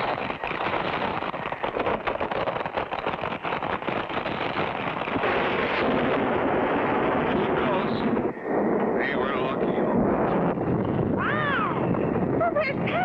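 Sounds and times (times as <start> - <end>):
rock crashing and rumbling: 0.0 - 8.2.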